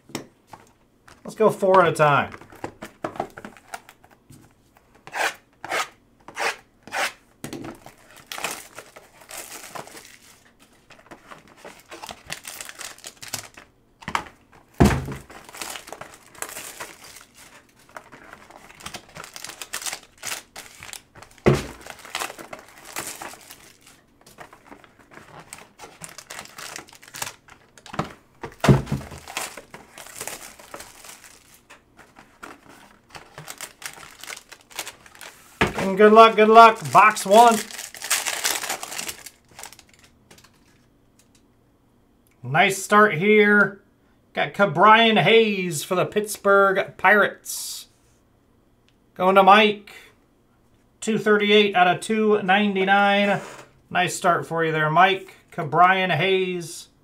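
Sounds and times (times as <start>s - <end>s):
foil crinkling and tearing: 7.8s - 13.7s, 15.2s - 28.0s, 28.6s - 40.8s
boxes thunking on table: 14.0s - 16.6s, 20.8s - 23.4s, 27.9s - 31.2s, 35.6s - 36.0s.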